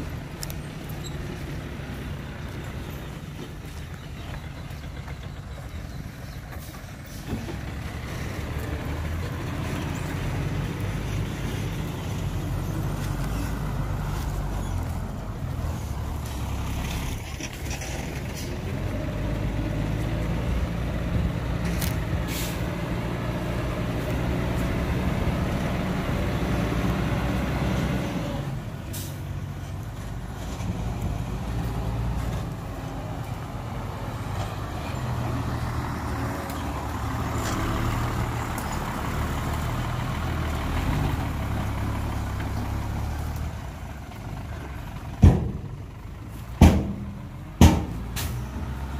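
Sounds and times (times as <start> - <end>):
diesel truck engine running: 0.0 - 48.9
short air hisses: 22.2 - 22.7.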